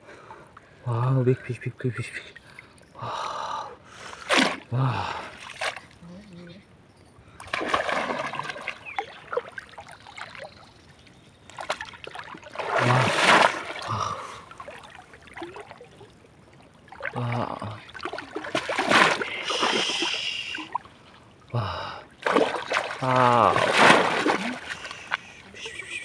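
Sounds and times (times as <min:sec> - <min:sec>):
water splashing and sloshing: 0:04.0 - 0:06.0, 0:07.3 - 0:26.0.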